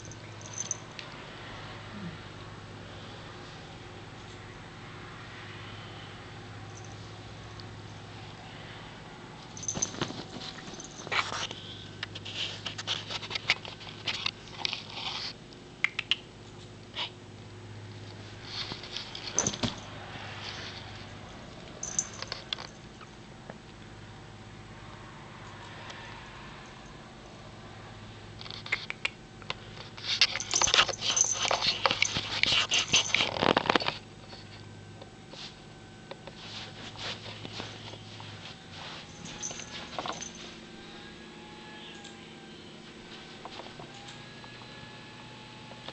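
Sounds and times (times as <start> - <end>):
low steady hum: 0.0 - 45.9
close rustling and crackling: 9.4 - 15.4, 18.0 - 22.8, 29.5 - 34.6
kitten claws scratching fabric: 30.0 - 34.0.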